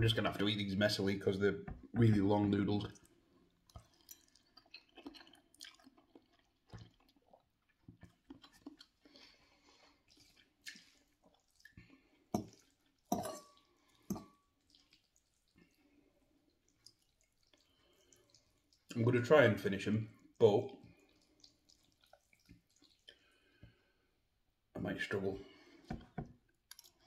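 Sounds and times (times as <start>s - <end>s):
slurping and chewing noodles: 2.9s - 19.0s, 20.2s - 23.9s, 26.6s - 27.0s.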